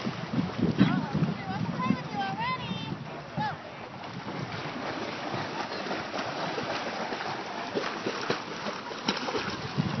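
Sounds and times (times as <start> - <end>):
lake water splashing at shore: 0.0 - 10.0.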